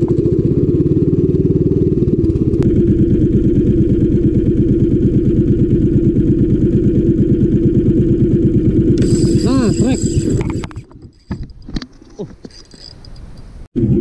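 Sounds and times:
small boat engine running: 0.0s - 11.0s.

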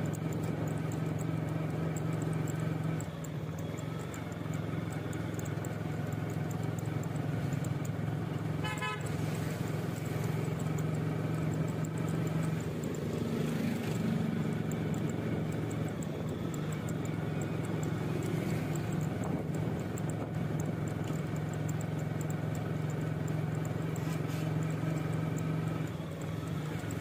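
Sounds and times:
street traffic engine drone: 0.0s - 27.0s
vehicle horn toot: 8.5s - 9.6s.

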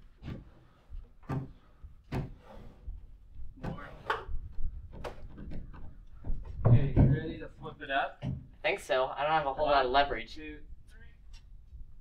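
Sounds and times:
wooden knocks and bumps: 0.2s - 8.6s.

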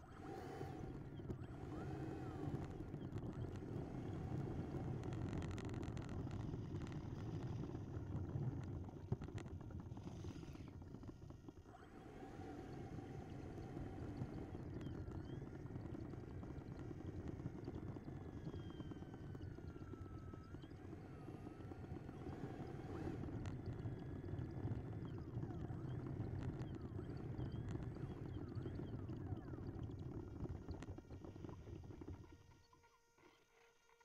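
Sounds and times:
wheels rumbling on asphalt: 0.0s - 32.4s
faint motor whine: 0.0s - 34.0s.

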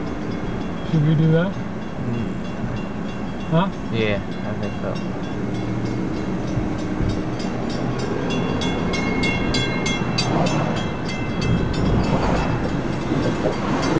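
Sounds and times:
crossing warning bell ringing: 0.0s - 13.9s
rail cars rumbling past: 0.0s - 13.9s.

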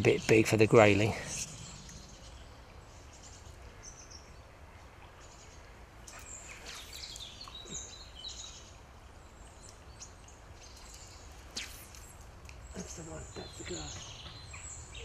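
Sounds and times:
small birds chirping: 0.0s - 15.0s.

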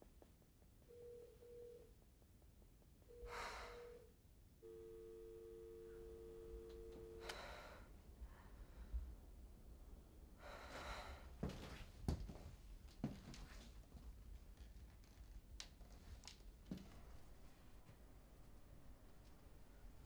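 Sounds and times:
person breathing: 3.2s - 4.1s, 7.1s - 9.1s, 10.4s - 11.4s
telephone ringback tone: 4.6s - 7.2s.

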